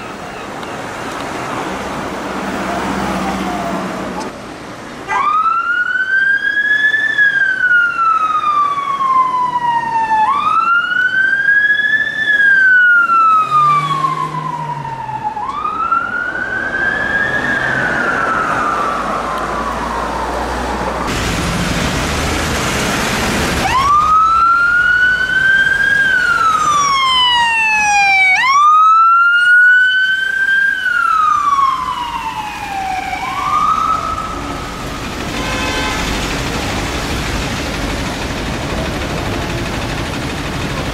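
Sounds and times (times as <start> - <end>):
ambulance siren wailing: 2.5 - 4.3, 5.0 - 21.1, 23.6 - 35.9
police siren wailing: 2.5 - 4.3, 5.0 - 21.1, 23.5 - 35.9
rushing noise: 16.9 - 28.2, 31.3 - 40.9.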